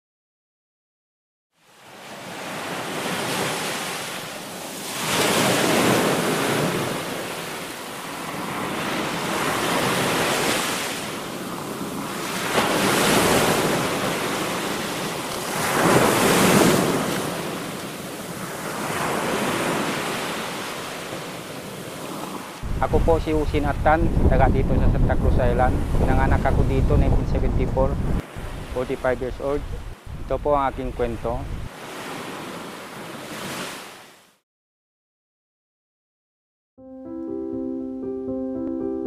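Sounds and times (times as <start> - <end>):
sea waves washing in: 1.6 - 34.4
wind on the microphone: 22.6 - 31.7.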